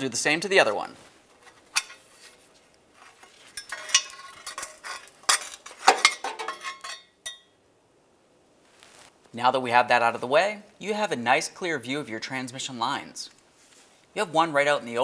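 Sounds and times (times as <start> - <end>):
metal heat shield clinking and scraping: 1.3 - 2.4, 3.0 - 7.4.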